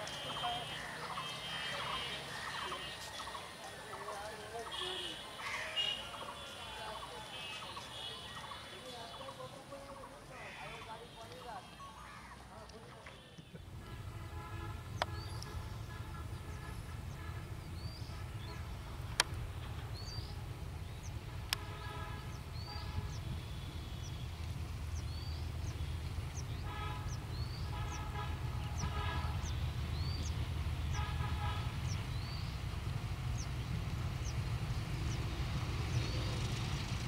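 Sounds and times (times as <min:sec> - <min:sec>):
train horn blasts: 0:13.8 - 0:18.7, 0:26.6 - 0:29.6, 0:30.9 - 0:32.0
bird chirping: 0:14.8 - 0:21.3, 0:22.1 - 0:37.0
diesel locomotive engine rumble: 0:22.4 - 0:37.0.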